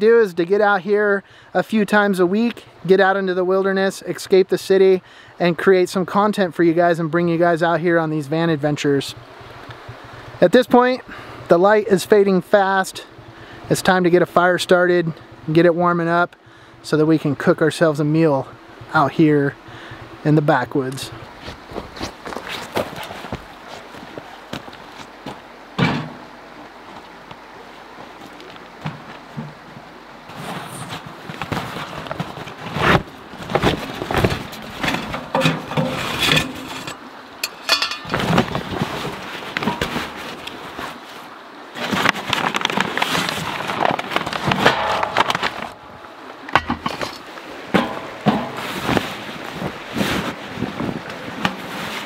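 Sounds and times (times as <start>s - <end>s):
brush rustling: 20.8s - 25.5s, 26.8s - 52.0s.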